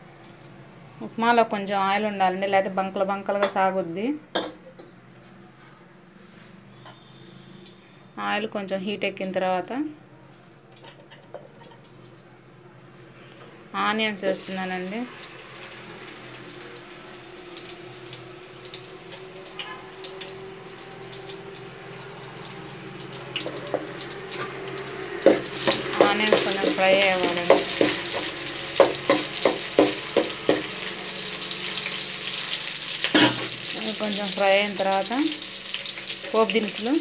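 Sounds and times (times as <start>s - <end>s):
onions sizzling in hot oil: 14.2s - 37.0s
oil popping: 17.6s - 31.0s
spatula stirring: 25.1s - 30.9s.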